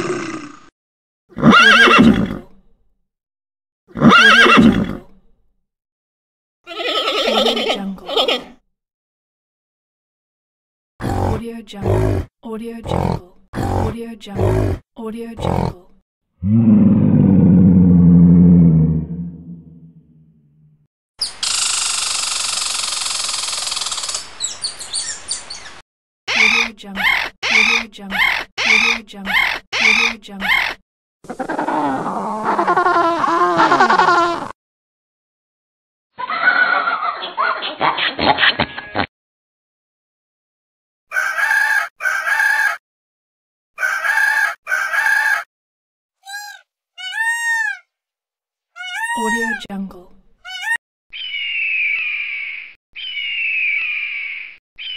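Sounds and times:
lion roar: 0.0 - 0.7, 11.0 - 12.3, 12.9 - 14.8, 16.4 - 20.2
squirrel chirps: 26.3 - 30.8
squirrel chattering trill: 26.3 - 31.6, 46.2 - 47.8, 48.8 - 49.7, 50.5 - 50.8
animal wailing calls: 31.3 - 34.5, 46.2 - 47.9, 48.8 - 49.7, 50.5 - 51.3
rooster crowing: 41.1 - 42.8, 43.8 - 45.5.

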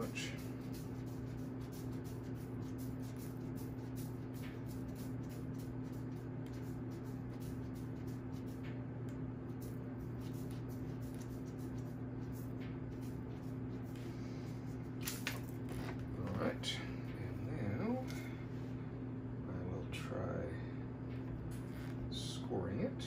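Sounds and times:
pastry brush strokes: 0.0 - 8.8, 9.4 - 16.4
steady low hum: 0.0 - 23.0.

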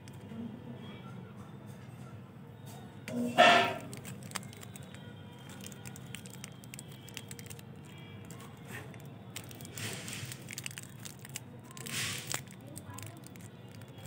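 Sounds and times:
faint background music: 0.0 - 14.0
plastic wrappers crinkling: 3.4 - 14.0.

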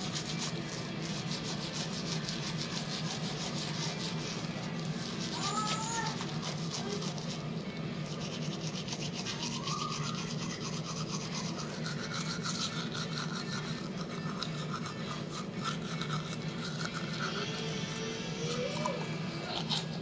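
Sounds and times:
toothbrush scrubbing teeth: 0.0 - 20.0.

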